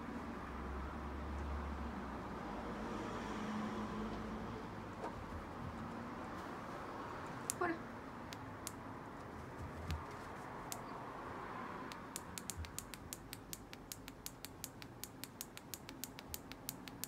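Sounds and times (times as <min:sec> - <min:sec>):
sharp clicks: 0:07.4 - 0:07.6, 0:10.7 - 0:10.9, 0:11.9 - 0:17.0.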